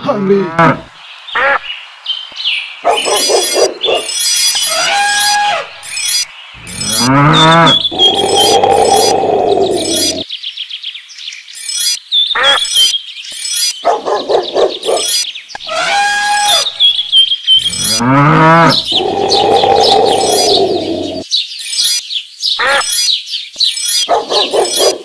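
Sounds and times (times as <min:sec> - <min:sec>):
farm animal calls: 0:00.5 - 0:01.7, 0:02.8 - 0:10.2, 0:12.3 - 0:21.2, 0:22.6 - 0:23.1, 0:23.9 - 0:25.0
birds chirping: 0:00.8 - 0:25.0
long loud rising animal call: 0:06.6 - 0:10.2, 0:17.6 - 0:21.2.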